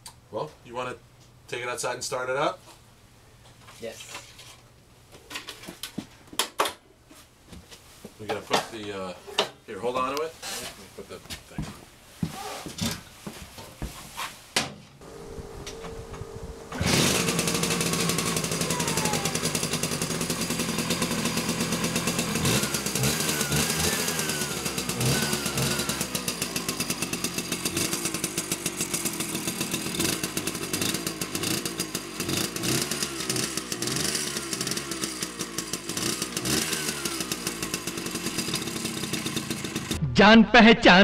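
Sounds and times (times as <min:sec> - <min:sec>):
scooter engine starting and revving: 0:15.0 - 0:40.0.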